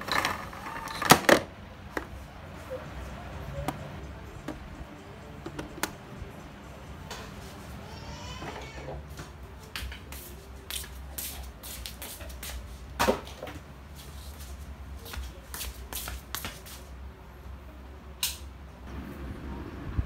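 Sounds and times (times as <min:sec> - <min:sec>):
low steady hum: 0:00.0 - 0:11.1
slippers scuffing on concrete: 0:09.8 - 0:16.9.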